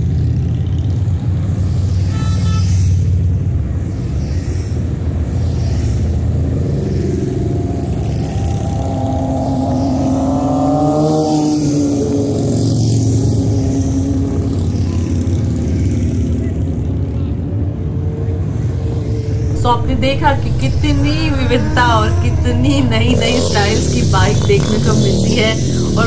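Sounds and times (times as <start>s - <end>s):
motorcycle engines rumbling: 0.0s - 26.0s
motorcycle engine passing by: 5.3s - 16.9s, 18.5s - 26.0s.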